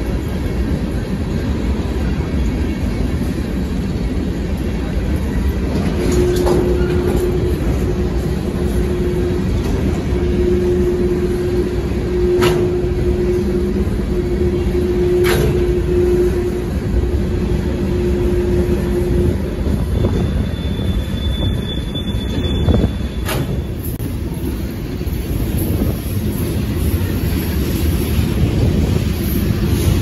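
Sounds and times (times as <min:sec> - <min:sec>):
high-pitched wheel squeal: 0:17.8 - 0:24.0.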